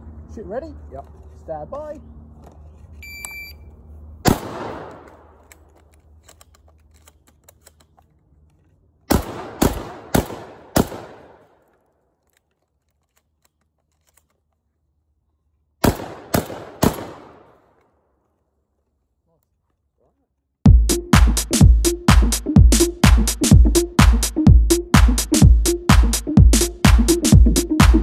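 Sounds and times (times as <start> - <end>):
shotgun shots: 4.2 - 5.4, 9.1 - 11.6, 15.8 - 17.6.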